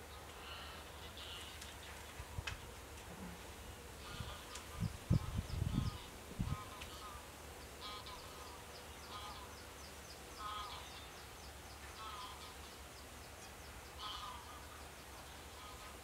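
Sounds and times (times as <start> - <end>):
geese honking: 0.4 - 1.7, 4.0 - 9.6, 10.4 - 11.1, 12.0 - 12.7, 14.0 - 14.8, 15.4 - 16.0.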